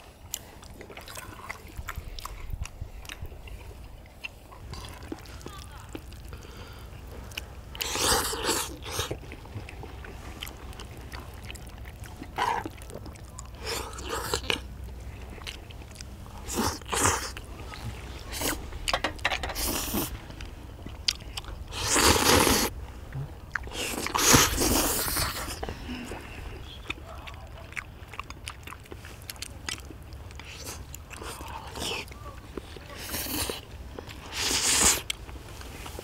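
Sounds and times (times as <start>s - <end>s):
chewing: 0.0s - 36.0s
people slurping noodles: 4.6s - 14.7s, 15.8s - 20.2s, 21.7s - 27.6s, 30.5s - 35.1s.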